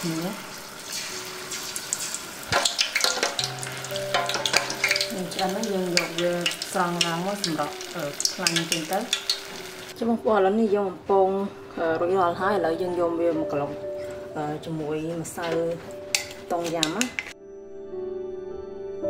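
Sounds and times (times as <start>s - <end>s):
food deep-frying in oil: 0.0s - 10.0s
metal ladle stirring: 0.9s - 9.8s, 16.0s - 17.3s.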